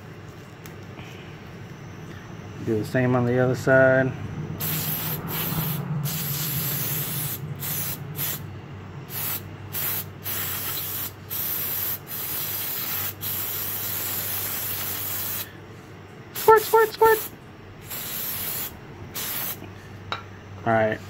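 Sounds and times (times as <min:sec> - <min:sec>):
aerosol spray hissing: 0:04.6 - 0:08.4, 0:09.1 - 0:15.5, 0:16.4 - 0:19.6.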